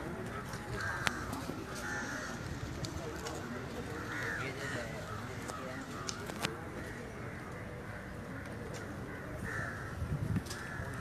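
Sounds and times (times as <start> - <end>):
murmur of distant voices: 0.0 - 11.0.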